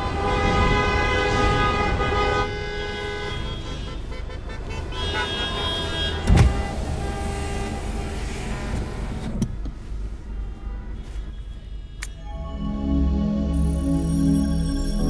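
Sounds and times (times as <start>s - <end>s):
car horns honking: 0.0s - 9.2s, 10.4s - 12.4s
engines rumbling: 0.0s - 15.0s.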